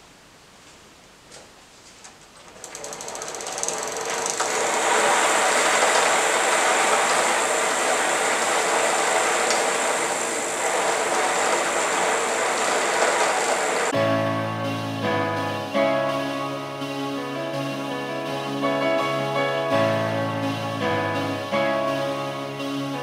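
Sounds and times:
fine rapid ticking: 0:02.4 - 0:13.5
bicycle hub whirring: 0:02.4 - 0:14.0.

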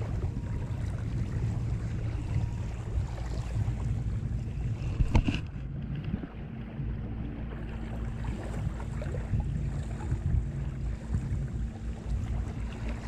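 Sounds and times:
steady low hum: 0:00.0 - 0:13.0
wind buffeting microphone: 0:00.0 - 0:13.0.

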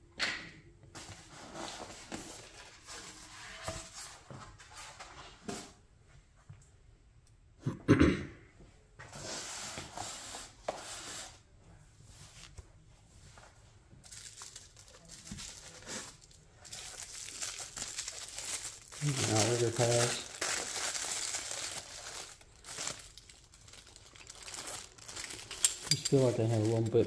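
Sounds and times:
packaging crinkling and tearing: 0:14.0 - 0:27.0.

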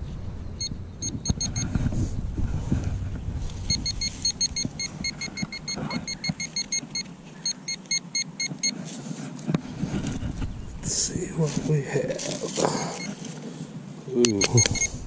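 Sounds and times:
metal detector probe beeping: 0:00.6 - 0:01.7, 0:03.7 - 0:08.8, 0:12.9 - 0:13.2, 0:14.2 - 0:15.0.

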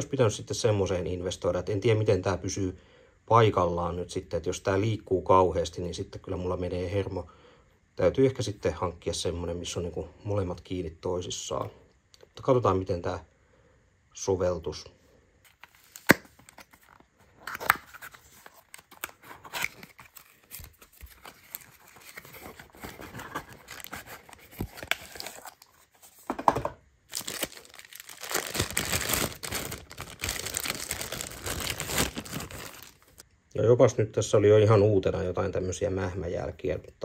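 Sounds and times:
plastic bag crinkling: 0:15.5 - 0:26.2, 0:27.1 - 0:33.2
cardboard packaging clicks and scrapes: 0:15.5 - 0:33.2.

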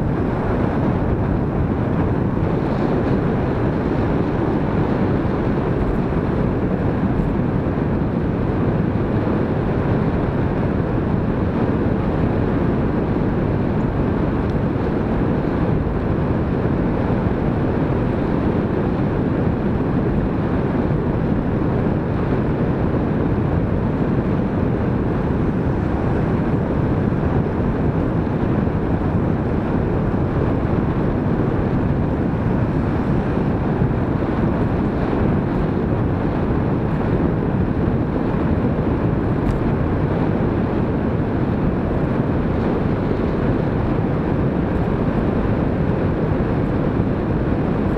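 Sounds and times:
wind rushing over microphone: 0:00.0 - 0:47.9.

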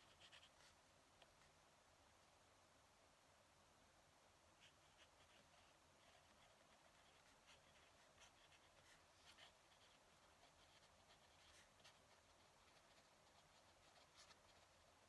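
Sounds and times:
pen nib scratching on paper: 0:00.0 - 0:01.3, 0:04.6 - 0:15.0.

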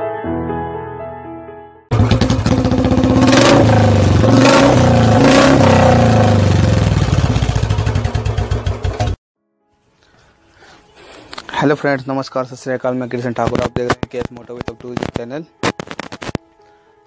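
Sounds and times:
motorcycle engine revving: 0:01.9 - 0:09.2.

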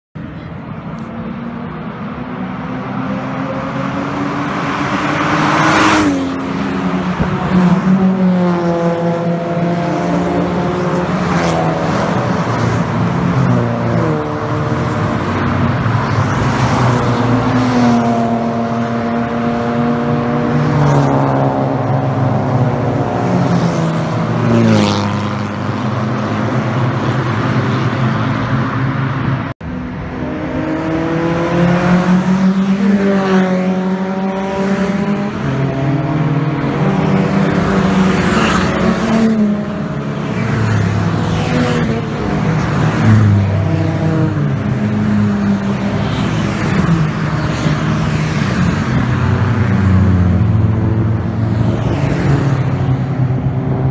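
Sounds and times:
cars passing by: 0:00.2 - 0:53.9
race car engines accelerating: 0:00.2 - 0:53.9.

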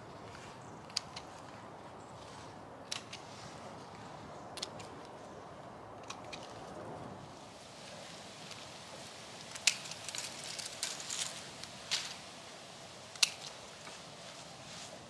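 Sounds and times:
pruning shears snipping twigs: 0:02.8 - 0:03.3, 0:06.0 - 0:06.6, 0:09.4 - 0:12.2, 0:13.0 - 0:14.1
twigs and branches crackling: 0:06.0 - 0:15.0.

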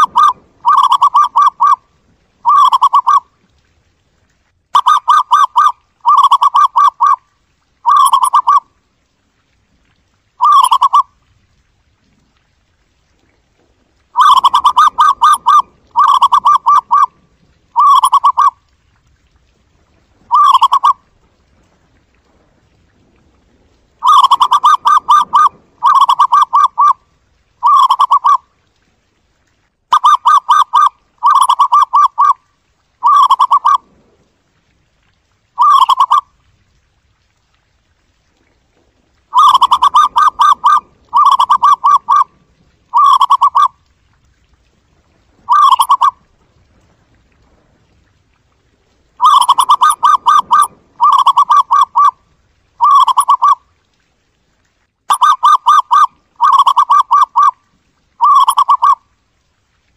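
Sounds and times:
dove trilling coos: 0:00.0 - 0:01.8, 0:02.4 - 0:03.2, 0:04.8 - 0:07.2, 0:07.8 - 0:08.6, 0:10.4 - 0:11.1, 0:14.2 - 0:17.1, 0:17.7 - 0:18.6, 0:20.3 - 0:21.0, 0:24.0 - 0:27.0, 0:27.6 - 0:28.4, 0:29.9 - 0:32.4, 0:33.0 - 0:33.8, 0:35.6 - 0:36.3, 0:39.3 - 0:42.3, 0:42.9 - 0:43.7, 0:45.4 - 0:46.2, 0:49.2 - 0:52.2, 0:52.8 - 0:53.6, 0:55.1 - 0:57.6, 0:58.2 - 0:59.0.

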